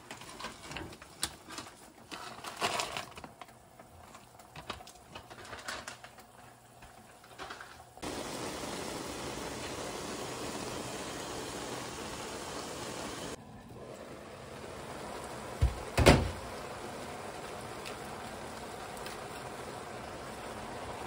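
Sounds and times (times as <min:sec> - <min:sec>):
dry noodles rustling and clicking: 0:00.0 - 0:07.6
steady hiss: 0:08.0 - 0:13.4.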